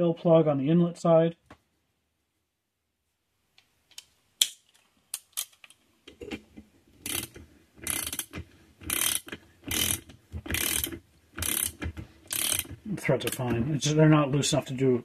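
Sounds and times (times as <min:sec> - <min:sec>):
ratchet wrench clicking: 0:07.0 - 0:13.5.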